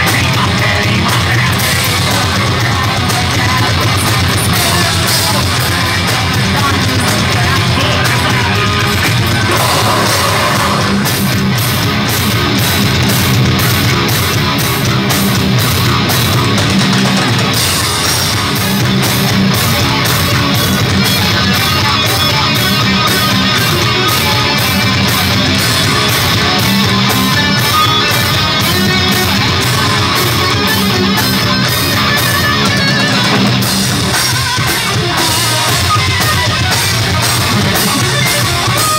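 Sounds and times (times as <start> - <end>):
heavy metal band playing live: 0.0 - 38.9.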